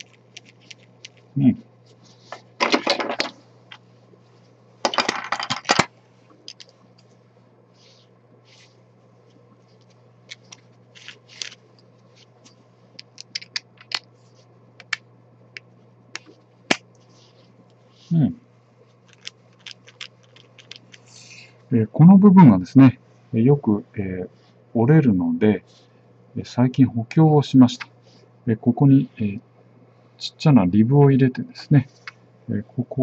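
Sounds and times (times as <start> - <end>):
steady low hum: 0.0 - 33.0
plastic parts scraping rattle: 4.9 - 5.9.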